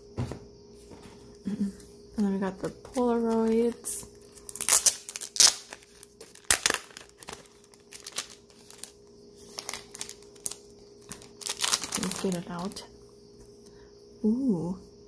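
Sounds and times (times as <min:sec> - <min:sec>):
plastic sleeve crinkling: 0:02.9 - 0:12.8.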